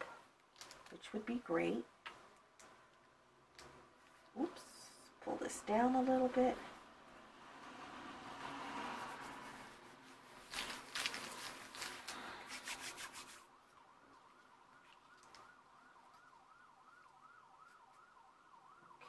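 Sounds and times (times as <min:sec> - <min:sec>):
paper rustling and crinkling: 0:10.0 - 0:16.5
faint warbling siren: 0:13.3 - 0:19.0.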